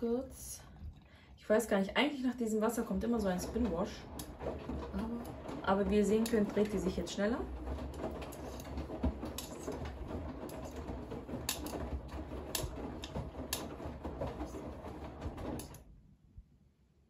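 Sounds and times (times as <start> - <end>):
washing machine drum turning: 2.5 - 15.8.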